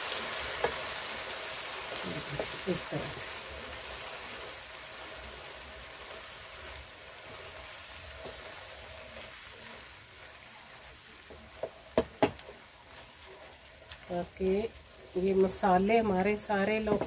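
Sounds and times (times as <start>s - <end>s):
food sizzling in a frying pan: 0.0s - 17.0s
wooden spoon knocking on pan: 0.6s - 0.8s, 11.2s - 12.6s, 16.7s - 17.0s
wooden spoon stirring: 1.8s - 17.0s.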